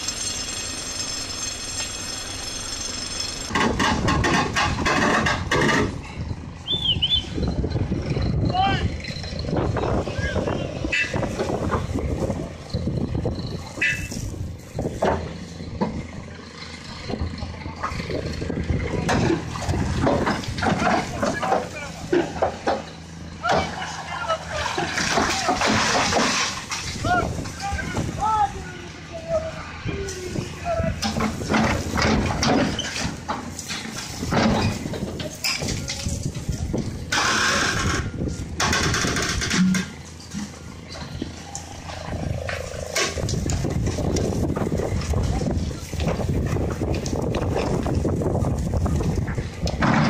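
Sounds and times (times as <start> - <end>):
excavator diesel engine under load: 0.0 - 50.0.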